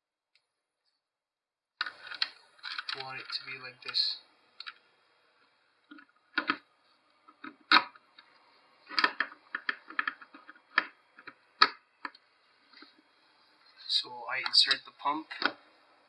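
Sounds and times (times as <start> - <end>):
hard plastic clicks and knocks: 5.9 - 6.7, 8.9 - 12.2.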